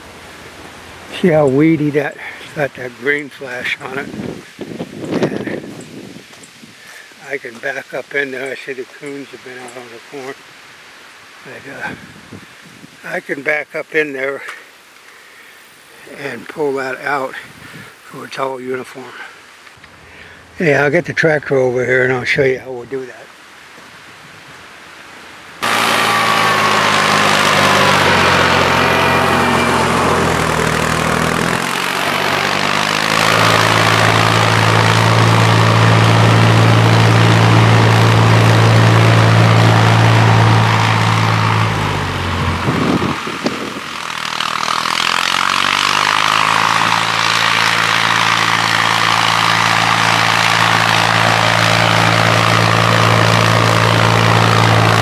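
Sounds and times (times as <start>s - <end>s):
tractor engine running: 25.6s - 55.0s.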